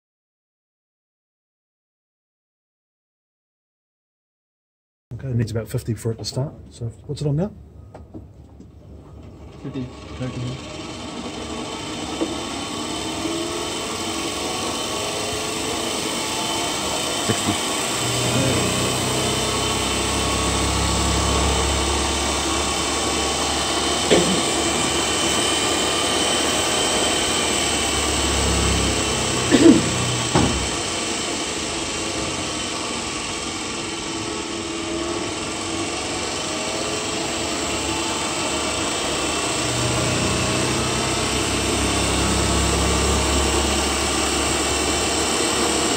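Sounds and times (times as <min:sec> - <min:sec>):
electric motor running: 0:09.4 - 0:45.9.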